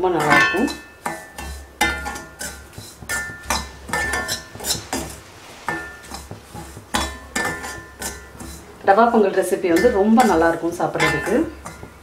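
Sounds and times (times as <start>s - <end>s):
metal spoon scraping iron pan: 0.0s - 12.0s.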